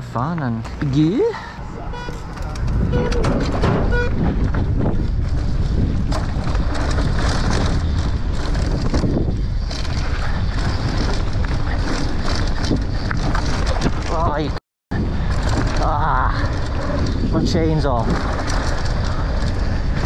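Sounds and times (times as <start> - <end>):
wind on microphone: 1.7 - 20.0
short beep: 1.9 - 2.3, 3.9 - 4.2
bike rattling over bumps: 2.0 - 20.0
bike tyres rolling over dirt: 2.2 - 20.0.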